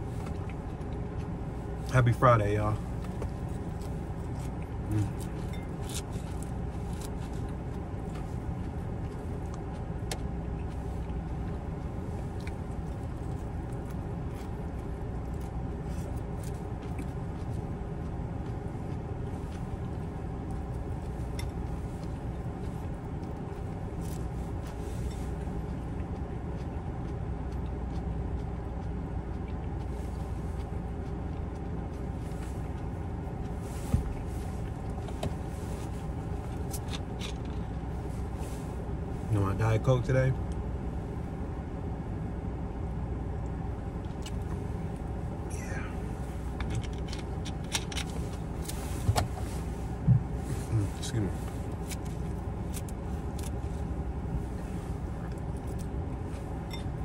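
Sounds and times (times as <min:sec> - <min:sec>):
car air conditioning hum: 0:00.0 - 0:57.0
faint eating clicks: 0:25.6 - 0:33.6.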